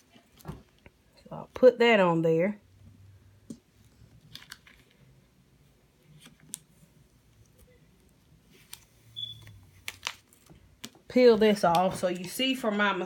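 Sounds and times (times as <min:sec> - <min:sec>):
vinyl and paper crinkling: 0:03.8 - 0:05.2, 0:06.0 - 0:12.7
short high squeak: 0:09.2 - 0:09.5.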